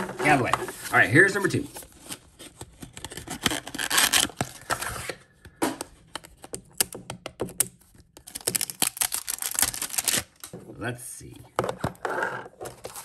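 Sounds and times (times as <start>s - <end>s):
foil wrapper crinkling: 8.3s - 10.5s.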